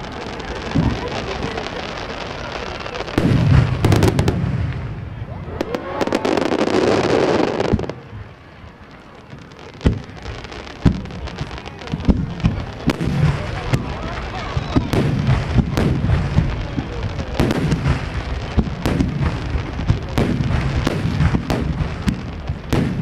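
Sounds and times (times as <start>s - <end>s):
firework bangs: 0.0s - 23.0s
firework crackling: 0.0s - 23.0s
firework boom: 3.2s - 6.7s, 10.8s - 23.0s.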